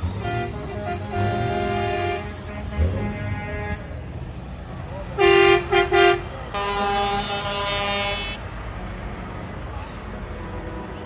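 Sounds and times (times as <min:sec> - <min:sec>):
truck air horn blast: 0:00.0 - 0:04.0, 0:05.2 - 0:08.4
truck passing rumble: 0:00.0 - 0:11.0.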